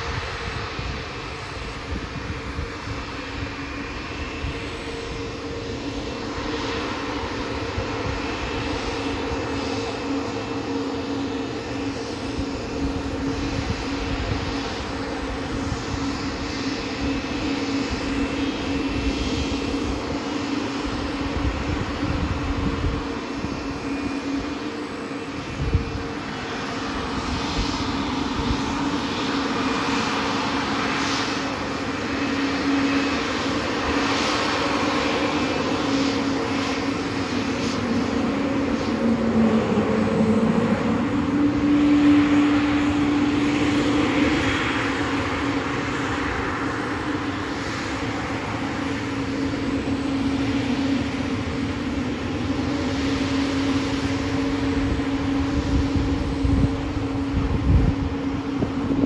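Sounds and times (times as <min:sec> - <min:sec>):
jet engine drone: 0:00.0 - 0:59.0.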